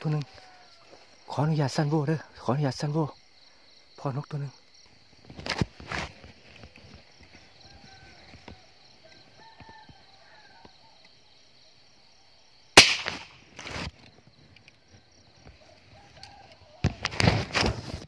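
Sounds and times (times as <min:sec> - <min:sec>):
insects chirping: 0:00.0 - 0:18.0
sharp gunshot: 0:12.8 - 0:13.4.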